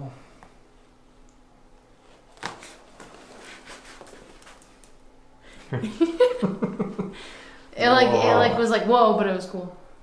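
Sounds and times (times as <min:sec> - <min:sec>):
person speaking: 0:07.8 - 0:09.0.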